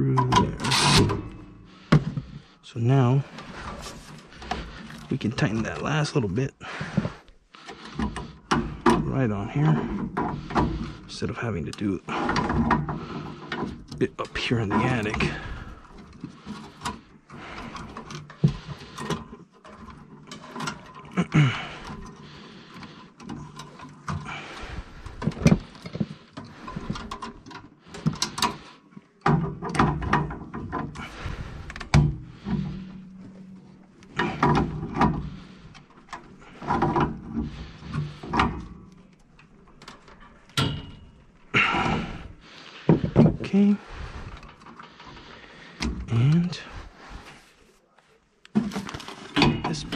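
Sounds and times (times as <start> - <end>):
wrench metal clicks and knocks: 31.7 - 41.5.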